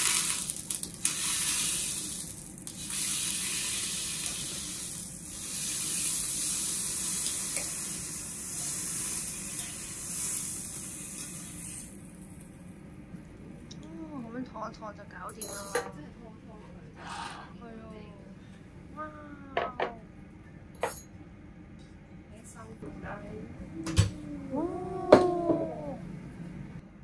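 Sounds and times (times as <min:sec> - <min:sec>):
beef sizzling on a grill: 0:00.0 - 0:12.4.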